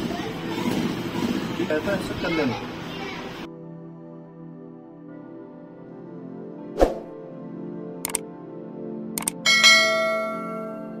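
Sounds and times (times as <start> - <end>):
background music: 0.0 - 11.0
mouse clicks: 8.0 - 8.2, 9.2 - 9.4
notification bell ding: 9.5 - 11.0.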